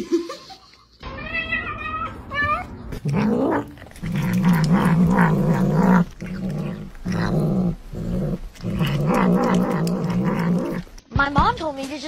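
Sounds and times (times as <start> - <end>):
kitten growling: 3.0 - 11.0.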